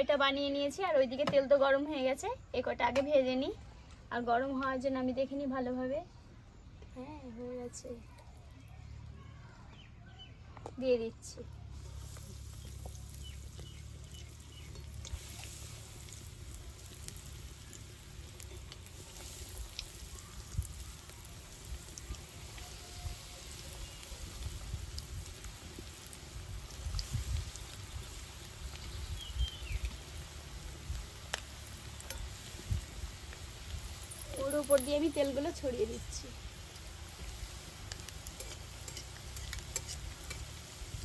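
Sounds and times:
oil bubbling and sizzling: 11.6s - 41.0s.

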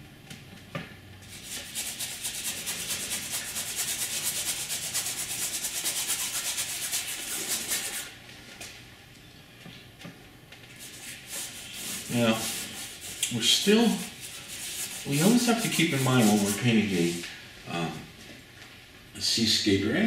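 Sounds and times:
paintbrush scrubbing on canvas: 1.2s - 8.1s, 10.8s - 17.2s.

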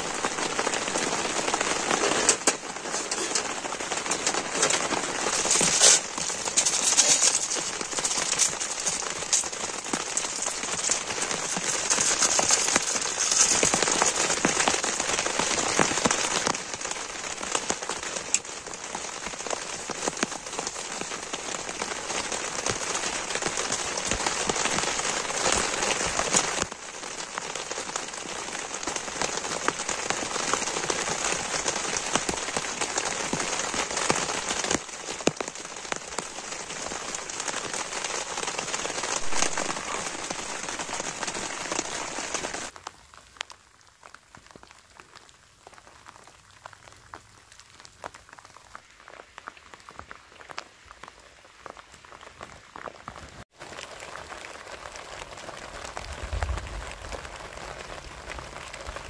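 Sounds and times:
heavy rain on tent: 0.0s - 59.0s
sparse patter of drops: 0.6s - 16.6s.

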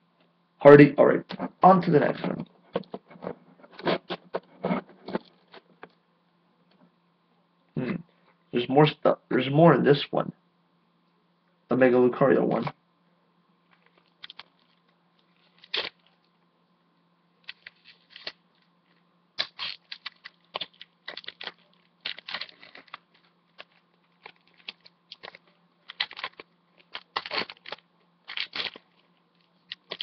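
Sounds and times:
foil wrapper tearing and crinkling: 13.8s - 16.1s, 17.4s - 18.7s, 19.4s - 30.0s.

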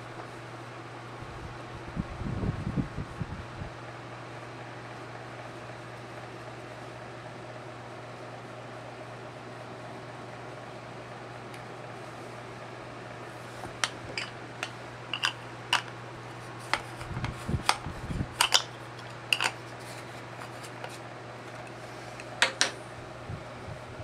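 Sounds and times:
room fan humming: 0.0s - 24.0s
plastic compacts clicking: 13.8s - 16.0s, 18.4s - 19.6s.

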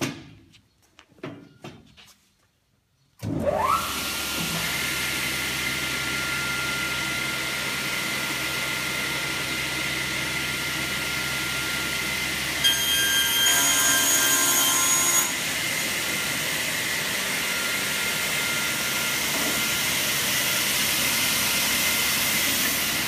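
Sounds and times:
table saw running: 3.4s - 23.0s.

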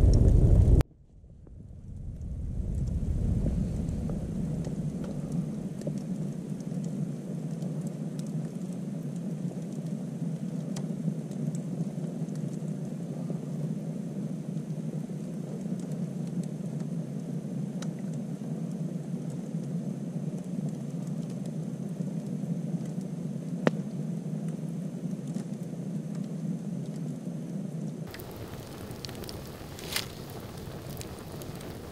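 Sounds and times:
fire popping: 0.0s - 0.8s, 1.5s - 7.0s, 28.1s - 31.9s
campfire rushing: 28.1s - 31.9s.

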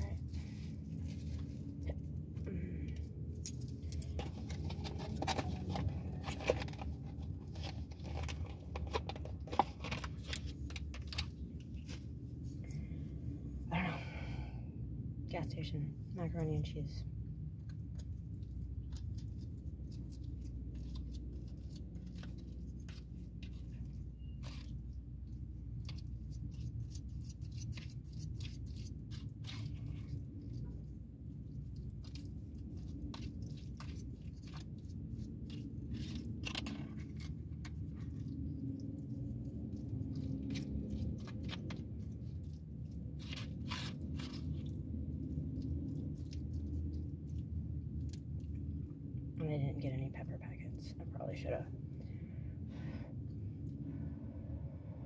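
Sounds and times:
steady low hum: 0.0s - 55.0s
chewing: 17.6s - 49.2s
plastic fork scraping a bowl: 20.7s - 30.8s.

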